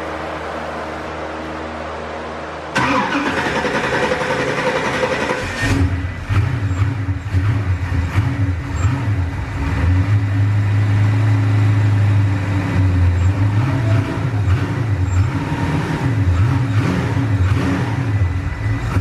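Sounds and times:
engine idling unevenly: 0.0s - 19.0s
engine starter cranking: 2.8s - 6.9s.

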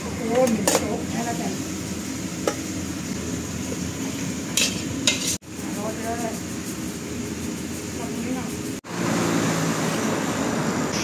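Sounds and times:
steady kitchen hiss: 0.0s - 11.0s
metal utensils clinking on wok: 0.3s - 1.0s, 4.5s - 5.4s.

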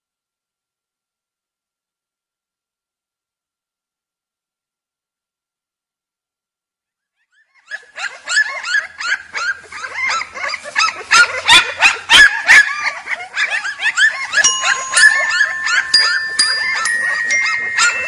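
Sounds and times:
puppies crying: 7.6s - 18.0s
held musical notes: 14.4s - 18.0s.

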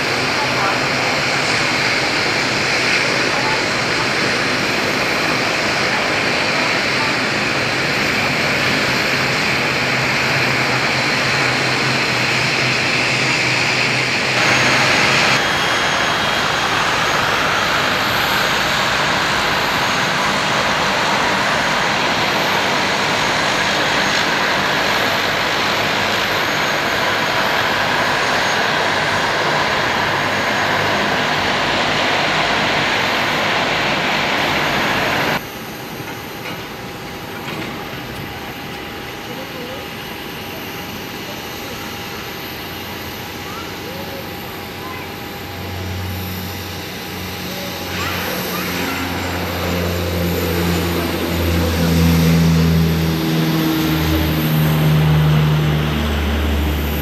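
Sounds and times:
turboprop engines whirring: 0.0s - 57.0s.

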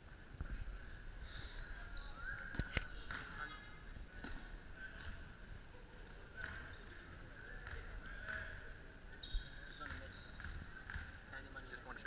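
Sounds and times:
ball bouncing: 2.4s - 3.5s, 4.1s - 5.3s, 7.5s - 8.6s, 9.7s - 11.4s.

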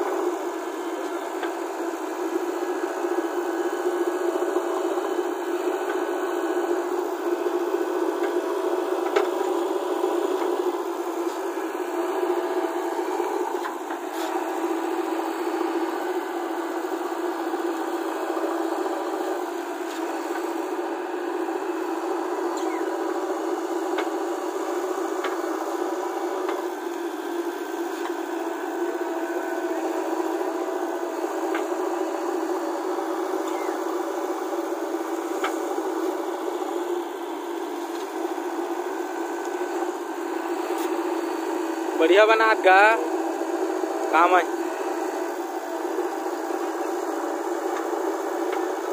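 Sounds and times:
diesel engine running under load: 0.0s - 48.9s
backhoe digging soil: 4.4s - 41.5s.

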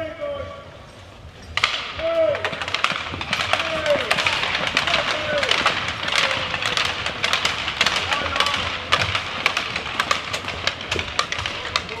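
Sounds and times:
voices and chatter: 0.0s - 12.0s
sharp claps and taps: 2.4s - 12.0s.

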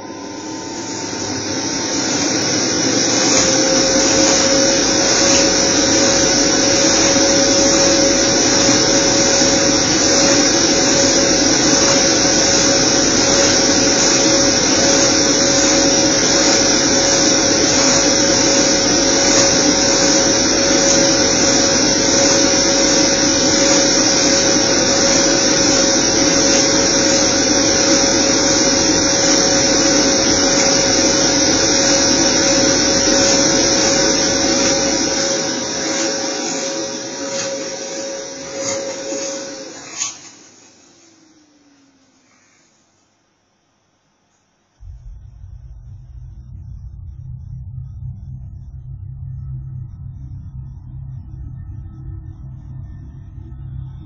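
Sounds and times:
blower motor whine: 0.0s - 43.0s, 44.8s - 54.0s
rush of air: 44.8s - 51.4s.

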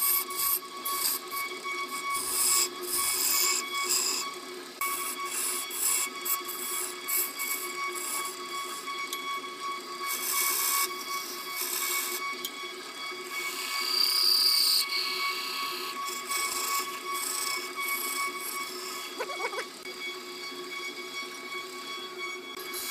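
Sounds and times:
wood lathe whining: 0.0s - 22.9s
turning tool scraping wood: 13.5s - 19.4s.

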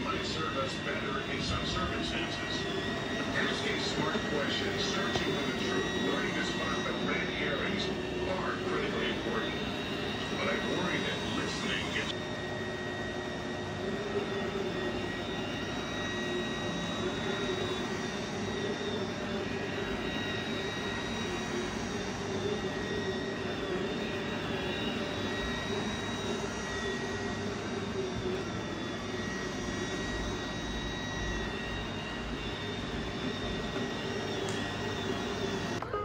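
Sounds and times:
robot vacuum cleaner running: 0.0s - 36.0s.

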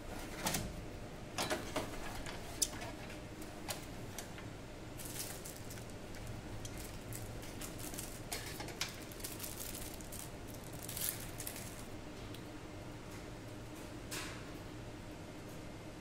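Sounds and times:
rustles and small clicks: 5.0s - 12.4s.

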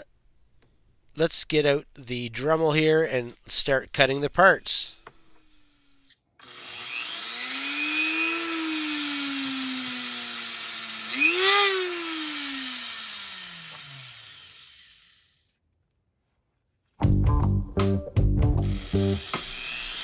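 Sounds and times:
rotary tool motor whine: 5.1s - 15.5s, 18.6s - 20.0s.

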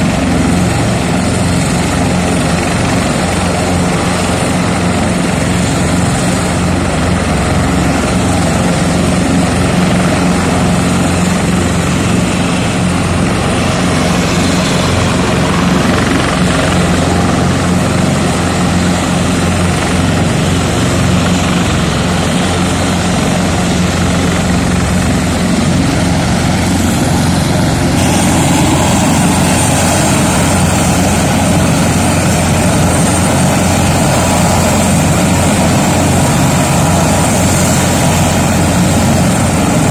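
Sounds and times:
helicopter turbine and rotor drone: 0.0s - 39.9s
low hum: 24.8s - 39.9s.

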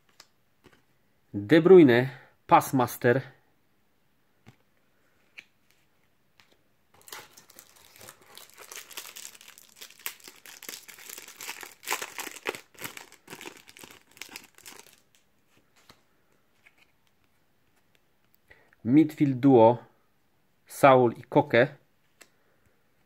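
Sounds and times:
foil wrapper crinkling and tearing: 7.0s - 15.2s.

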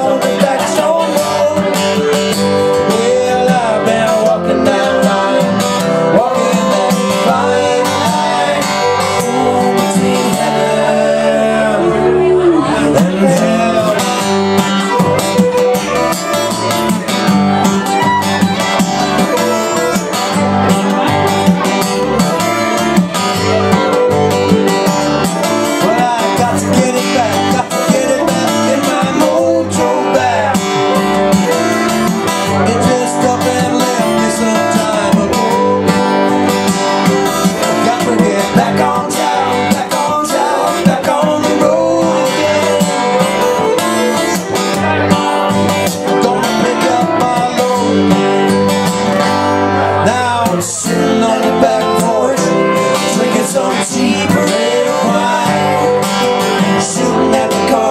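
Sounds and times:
strummed acoustic guitars: 0.0s - 57.9s
bowed fiddle: 11.8s - 27.9s.

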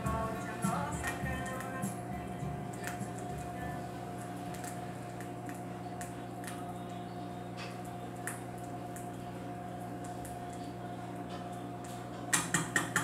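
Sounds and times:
vinyl pop: 0.0s - 3.9s
low hum: 0.0s - 11.7s.

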